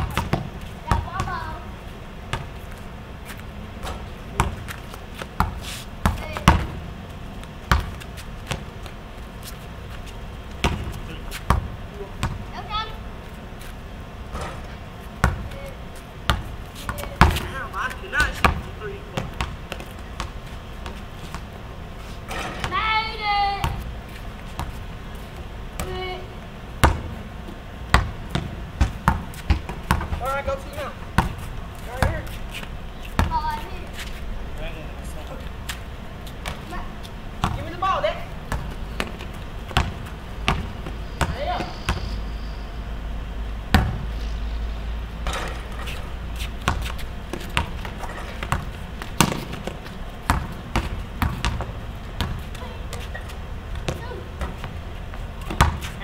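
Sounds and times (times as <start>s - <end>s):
basketballs bouncing on concrete: 0.0s - 13.7s, 14.3s - 21.7s, 22.3s - 34.2s, 34.8s - 42.2s, 43.7s - 44.1s, 45.2s - 56.0s.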